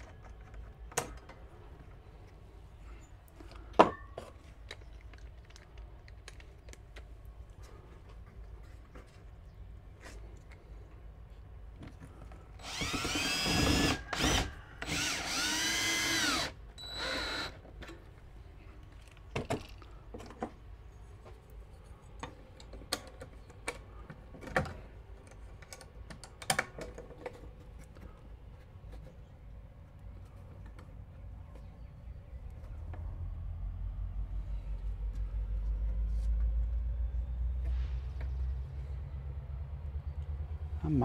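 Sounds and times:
cordless drill whining: 12.6s - 17.6s.

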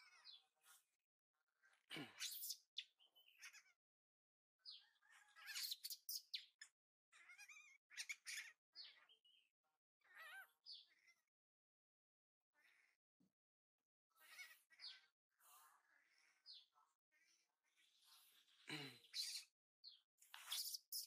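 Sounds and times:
baby monkey squealing: 5.3s - 6.5s, 7.1s - 8.6s, 10.0s - 10.5s, 14.2s - 15.0s.

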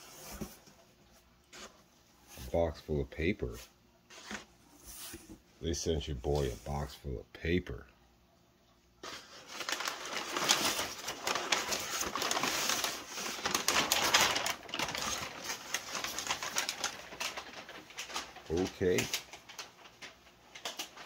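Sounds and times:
paper crinkling and rustling: 4.1s - 5.4s, 9.0s - 21.0s.

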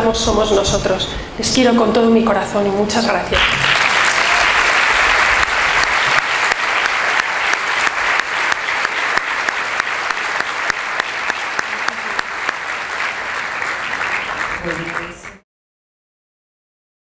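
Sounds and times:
audience applauding: 3.4s - 15.4s.

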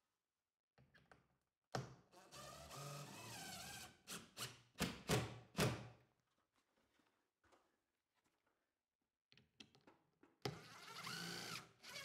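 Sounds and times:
cordless drill driving screw: 10.5s - 12.0s.

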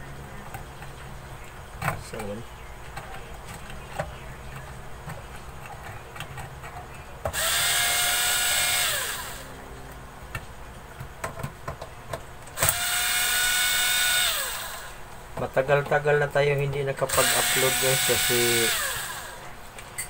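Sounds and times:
electric screwdriver running: 7.3s - 9.5s, 12.6s - 15.0s, 17.0s - 19.5s.

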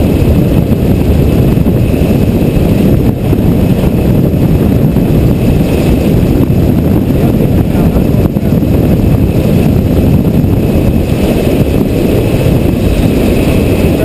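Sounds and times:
loud low rush of airflow: 0.0s - 14.0s.

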